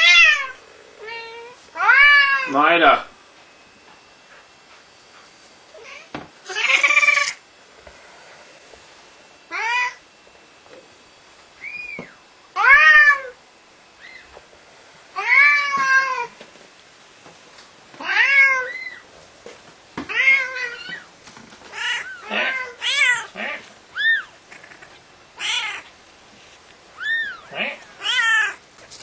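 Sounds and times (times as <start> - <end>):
cat meowing: 0.0 - 2.5, 5.8 - 7.4, 9.5 - 10.0, 11.6 - 13.4, 18.0 - 19.0, 20.1 - 21.1, 21.7 - 25.9, 27.0 - 28.6.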